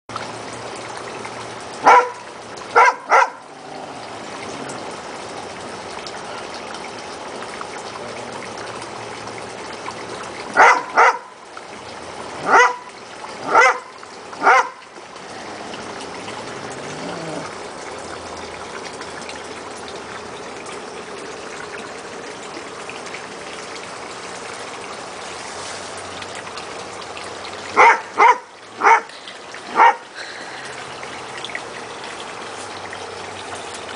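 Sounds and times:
trickle of running water: 0.1 - 33.9
dog barking: 1.8 - 3.4, 10.5 - 11.3, 12.4 - 14.8, 27.8 - 29.1, 29.7 - 30.0.

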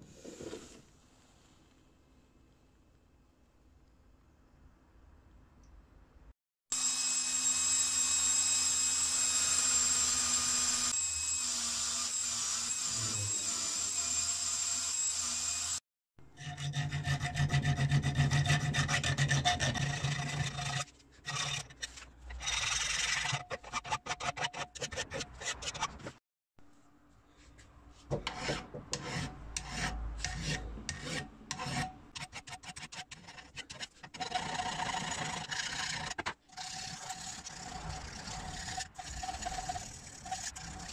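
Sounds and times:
drill grinding wheel on steel: 6.7 - 15.8, 34.2 - 40.9
hand filing on steel: 16.5 - 21.7, 28.1 - 40.9.

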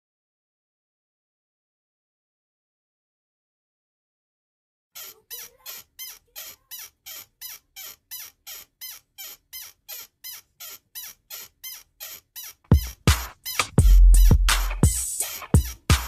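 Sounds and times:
short high squeaky chirps: 5.0 - 15.8
electronic music beat: 12.7 - 16.0.

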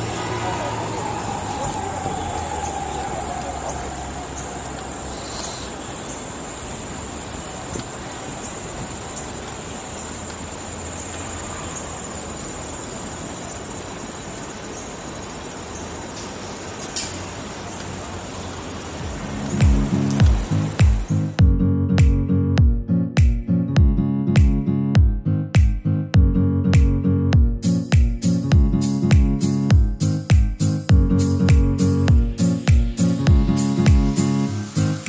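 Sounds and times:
even hiss: 0.0 - 21.4, 27.7 - 35.0
low traffic rumble: 0.0 - 22.9.

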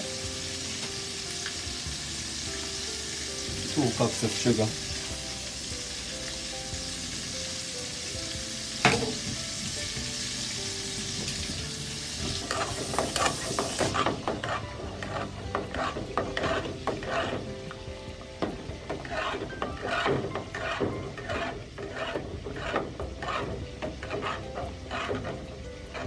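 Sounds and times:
steady hiss: 0.0 - 14.1
spoon knocking on pot: 8.8 - 9.4, 12.2 - 17.4
metal spoon stirring in pot: 10.9 - 26.0.

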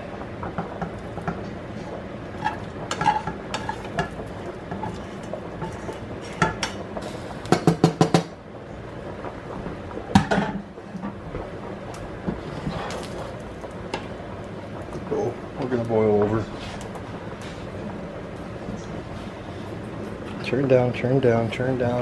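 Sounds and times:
spoon scraping pans: 2.4 - 6.8
knocks on a pan: 7.5 - 8.3, 10.1 - 10.6.

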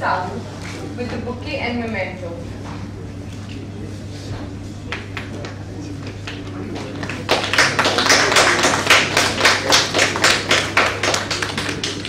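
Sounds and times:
steady low hum: 0.0 - 12.0
audience applauding: 6.2 - 12.0.

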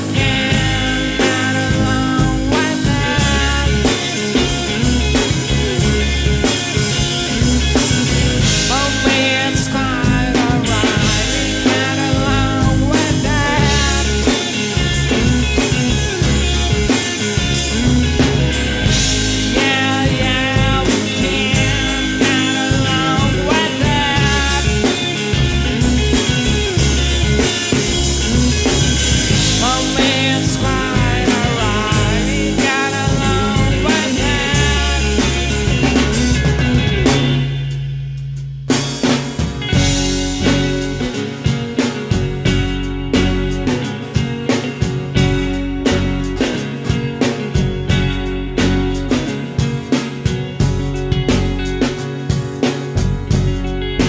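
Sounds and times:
man singing: 0.0 - 4.7, 8.6 - 14.7, 19.4 - 25.5, 29.3 - 36.2
acoustic guitar: 0.0 - 54.0
bass: 0.0 - 54.0
drum kit beat: 0.0 - 54.0
electric guitar: 0.0 - 54.0.

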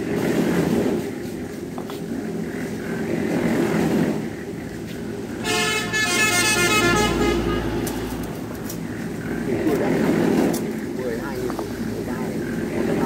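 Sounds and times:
vehicle horn: 5.4 - 8.2.

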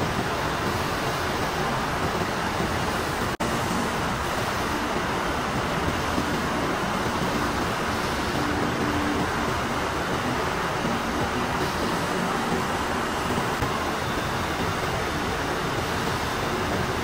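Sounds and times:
textile machinery din: 0.0 - 17.0.

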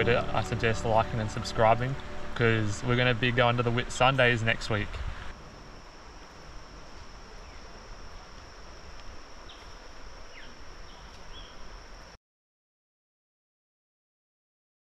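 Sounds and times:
background hiss: 0.0 - 12.2
insects droning: 0.0 - 12.2
bird chirps: 9.4 - 11.7.

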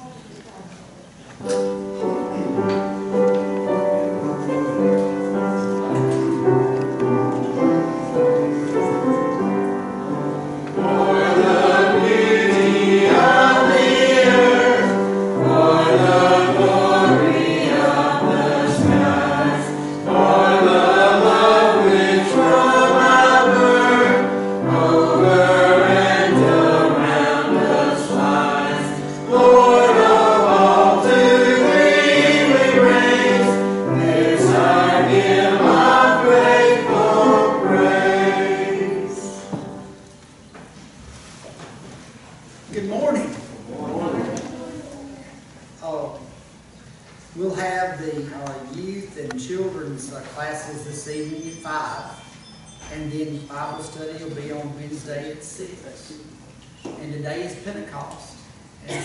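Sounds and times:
choir singing a hymn: 1.6 - 40.1, 43.5 - 44.9.

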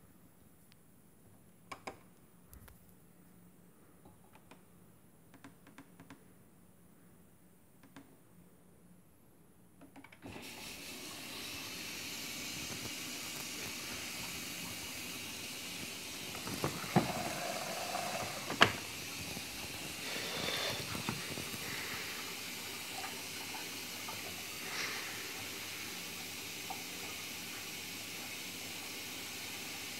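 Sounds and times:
water running into washing machine: 10.2 - 29.9.

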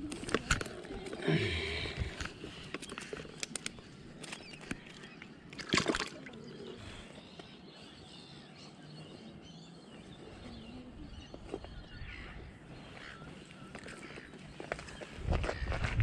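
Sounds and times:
faint outdoor background: 0.0 - 16.0
fishing gear clicks: 2.1 - 5.0.

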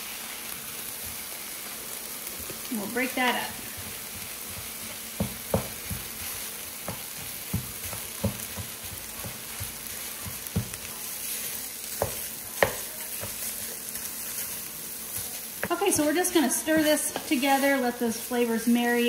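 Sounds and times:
meat sizzling in a skillet: 0.0 - 19.0
spatula knocking against pan: 3.9 - 10.9, 11.9 - 13.4.

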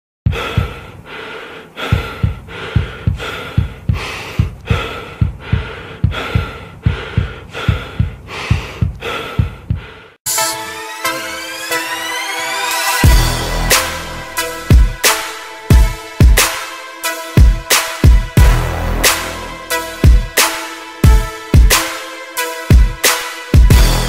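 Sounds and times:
heartbeat thumps: 0.2 - 1.1, 1.7 - 10.1, 14.7 - 15.0, 15.7 - 16.5, 17.4 - 18.8, 20.0 - 20.4, 21.0 - 21.8, 23.6 - 24.0
heavy rhythmic breathing: 0.2 - 10.2, 13.0 - 24.0
electronic music: 10.3 - 24.0.

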